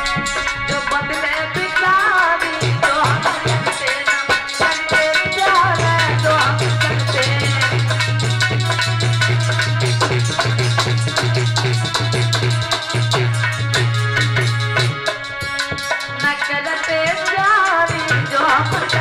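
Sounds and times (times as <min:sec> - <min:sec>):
man singing: 0:00.0 - 0:08.4
drumming: 0:00.0 - 0:19.0.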